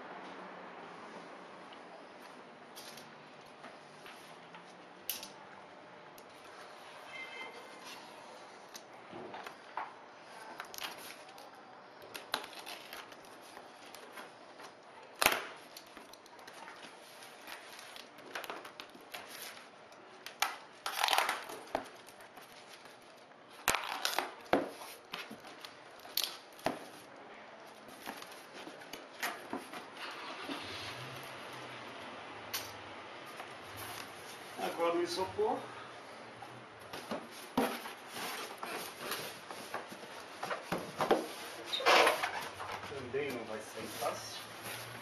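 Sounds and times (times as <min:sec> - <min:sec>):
tape tearing: 0:10.6 - 0:14.2, 0:20.2 - 0:27.0
scissors slitting packing tape: 0:20.2 - 0:21.6.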